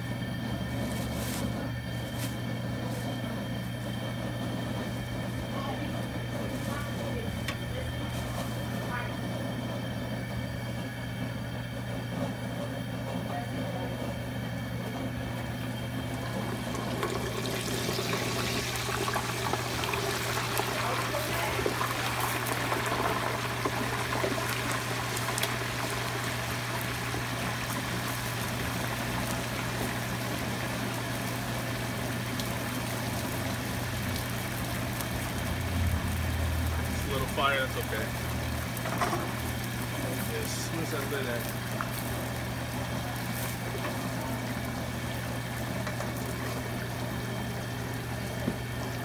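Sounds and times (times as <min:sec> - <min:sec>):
low hum of gas burner: 0:00.0 - 0:49.0
oil sizzling and bubbling: 0:00.0 - 0:49.0.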